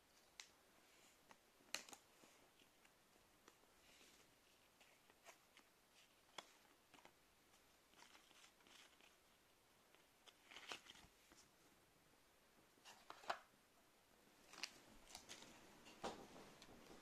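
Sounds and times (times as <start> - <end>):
trading cards being handled: 1.2 - 9.3, 9.9 - 11.5.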